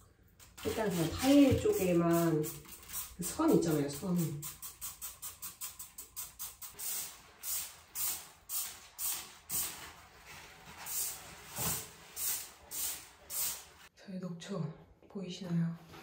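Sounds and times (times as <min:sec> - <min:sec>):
spray bottle squirting: 0:00.6 - 0:09.8, 0:12.2 - 0:13.7.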